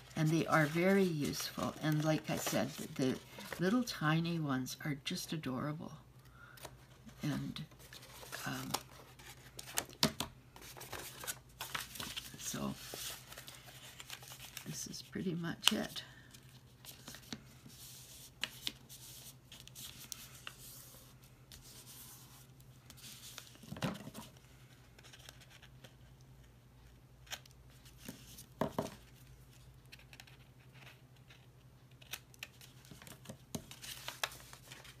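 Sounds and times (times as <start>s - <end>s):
paper rustling: 0.0s - 3.8s, 10.6s - 14.8s, 32.0s - 35.0s.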